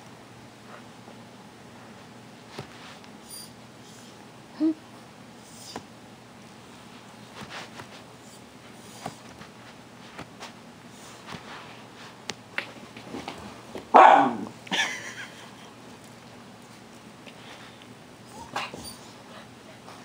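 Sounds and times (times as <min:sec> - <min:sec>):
dog barking: 0:13.9 - 0:14.5.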